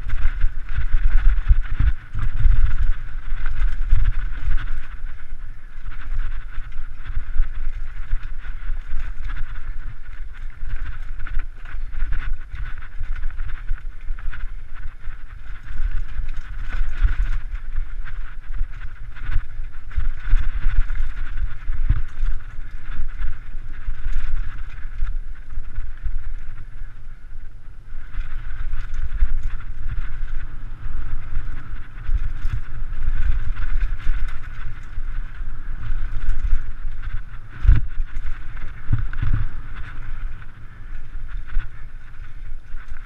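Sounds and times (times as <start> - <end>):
bike rattling: 0.0 - 43.0
wind and trail vibration rumble: 0.0 - 43.0.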